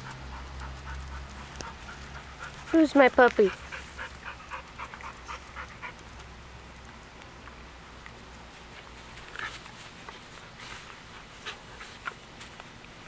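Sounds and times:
dog panting quickly: 0:00.0 - 0:06.0.

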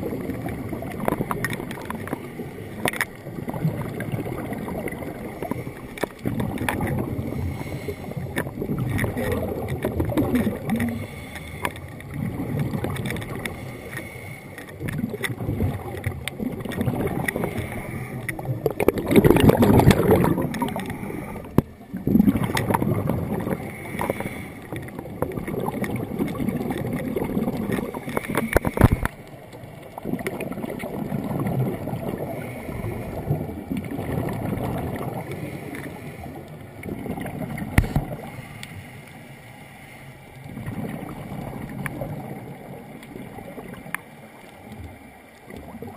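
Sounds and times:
bubbles gurgling underwater: 0:00.0 - 0:13.9, 0:14.6 - 0:38.4, 0:40.4 - 0:45.9
diver breathing through regulator: 0:07.1 - 0:08.5, 0:10.5 - 0:12.0, 0:13.4 - 0:14.8, 0:17.2 - 0:18.5, 0:19.9 - 0:21.6, 0:23.4 - 0:24.8, 0:32.2 - 0:33.4, 0:35.2 - 0:36.5, 0:37.8 - 0:40.2.

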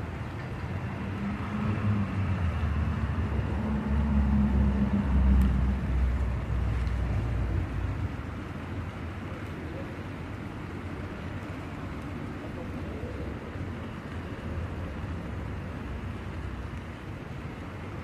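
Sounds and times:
car passing by: 0:00.0 - 0:09.4.

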